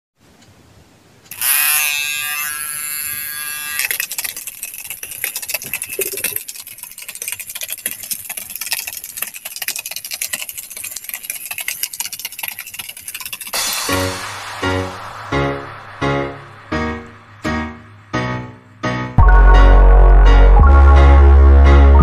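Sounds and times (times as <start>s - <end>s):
small motor buzzing whine: 1.3s - 4.0s.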